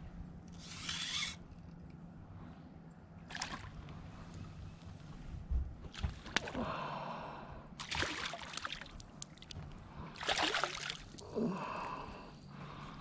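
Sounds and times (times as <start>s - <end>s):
fish splashing at water surface: 7.8s - 9.5s, 10.2s - 11.2s.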